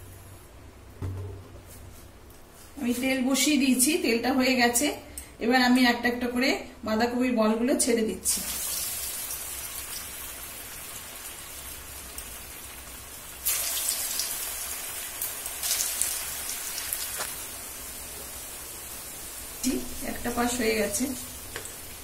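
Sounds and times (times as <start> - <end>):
deep-frying sizzle in oil: 8.2 - 22.0.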